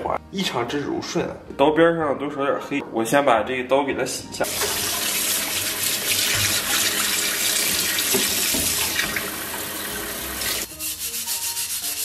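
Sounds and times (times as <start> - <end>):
tap water splashing on metal: 4.6 - 9.6.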